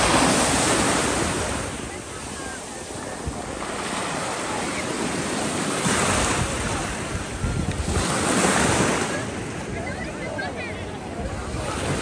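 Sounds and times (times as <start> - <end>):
surf washing in shallow water: 0.0 - 12.0
wind buffeting microphone: 6.0 - 8.9.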